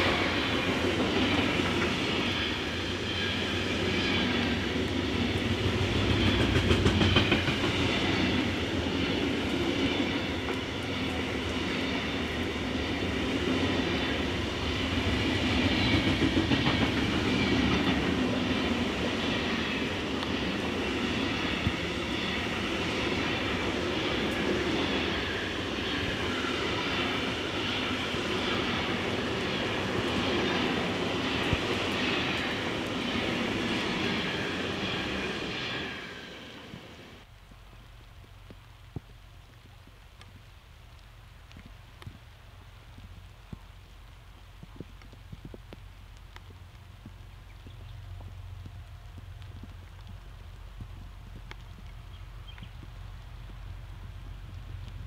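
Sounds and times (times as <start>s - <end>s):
freight train rolling past: 0.0s - 37.3s
steel wheels rumbling on rail: 0.0s - 37.3s
rhythmic clickety-clack of wagons: 5.4s - 8.4s, 15.2s - 18.8s.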